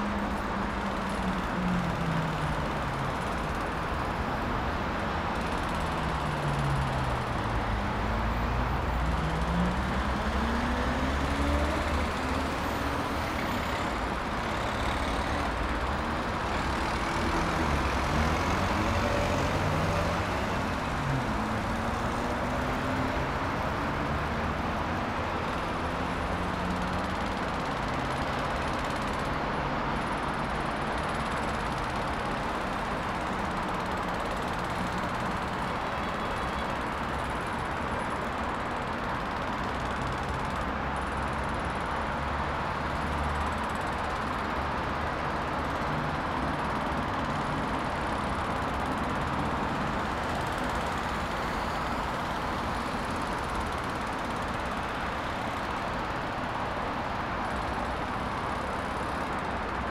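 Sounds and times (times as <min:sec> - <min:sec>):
distant road traffic: 0:00.0 - 0:59.9.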